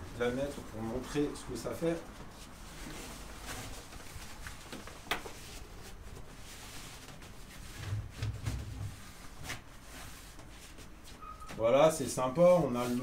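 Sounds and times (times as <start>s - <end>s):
fabric cover rustling: 2.2s - 11.6s.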